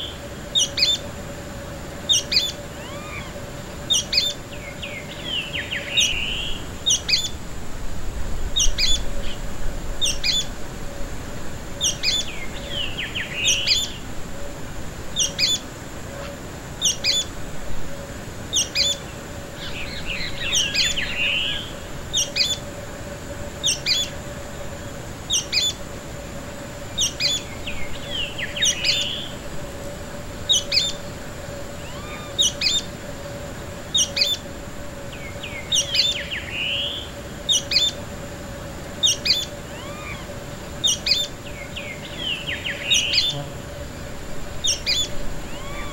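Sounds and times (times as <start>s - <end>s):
bird twittering: 2.1s - 7.4s, 8.6s - 9.0s, 10.0s - 10.5s, 11.8s - 14.0s, 18.5s - 19.0s, 19.6s - 22.6s, 25.3s - 25.8s, 27.0s - 29.3s, 30.5s - 31.1s, 31.8s - 32.9s, 33.9s - 34.4s, 35.2s - 38.0s, 39.0s - 43.6s, 44.6s - 45.9s.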